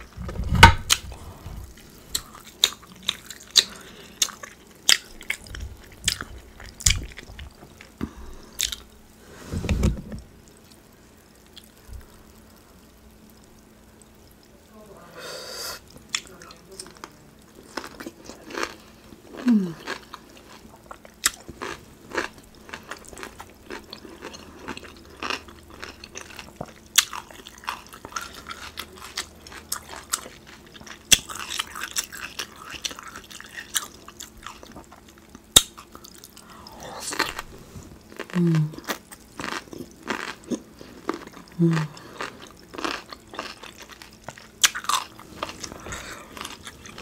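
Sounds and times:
food crunching: 0.0 - 9.2, 15.9 - 47.0
wet chewing and lip smacks: 0.8 - 9.0.

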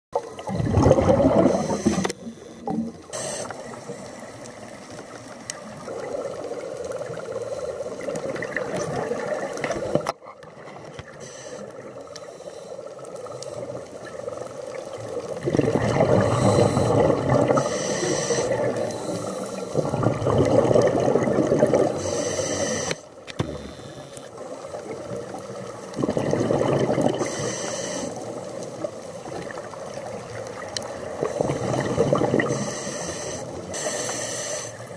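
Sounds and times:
exhaled bubbles gurgling underwater: 0.2 - 34.9
regulator hiss: 1.5 - 4.4, 11.2 - 13.8, 17.6 - 19.8, 22.0 - 24.3, 27.2 - 28.5, 32.4 - 34.9.

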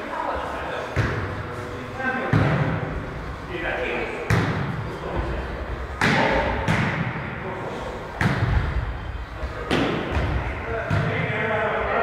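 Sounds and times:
volleyball hits echoing: 0.9 - 1.5, 2.2 - 2.9, 4.2 - 4.9, 5.9 - 7.4, 8.1 - 8.8, 9.6 - 11.4.

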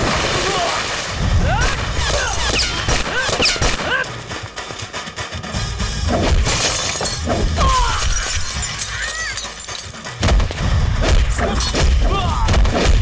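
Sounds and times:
glass shattering: 6.4 - 10.4.

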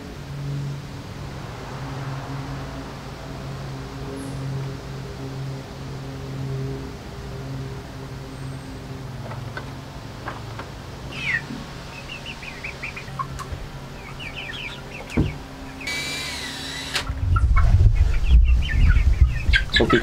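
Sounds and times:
birds chirping: 8.2 - 20.0
hens clucking: 9.2 - 16.1, 17.0 - 20.0
cordless drill whining: 15.8 - 17.0.

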